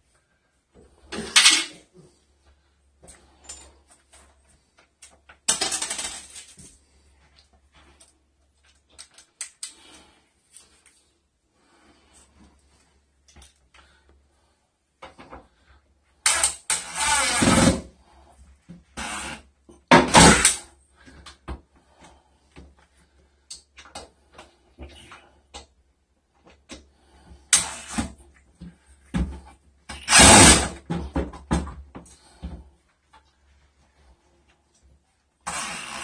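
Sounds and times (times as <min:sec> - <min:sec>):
cordless drill driving screws: 0:16.3 - 0:17.7, 0:19.0 - 0:19.4, 0:30.0 - 0:30.7, 0:35.5 - 0:36.0.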